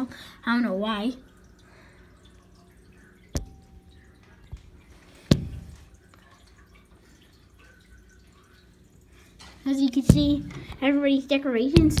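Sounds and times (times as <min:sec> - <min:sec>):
sharp knocks: 0:03.4 - 0:03.8, 0:04.5 - 0:05.9, 0:10.1 - 0:10.8, 0:11.8 - 0:12.0.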